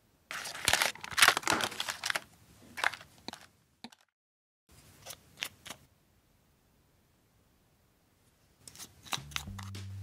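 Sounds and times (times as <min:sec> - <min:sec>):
taps and clicks: 0:09.1 - 0:10.0.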